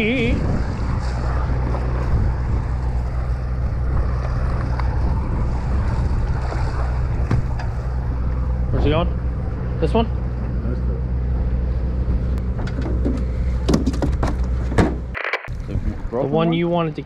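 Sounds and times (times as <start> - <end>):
waves washing against hull: 0.0 - 9.8
wind buffeting microphone: 0.0 - 10.6, 11.2 - 16.8
boat engine drone: 0.0 - 17.0.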